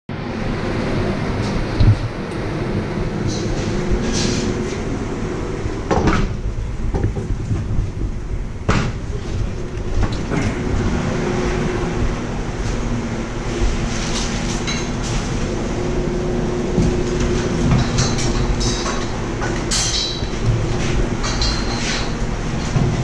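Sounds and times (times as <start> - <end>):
low mechanical rumble: 0.1 - 23.0
sharp metallic clanks: 17.7 - 20.4.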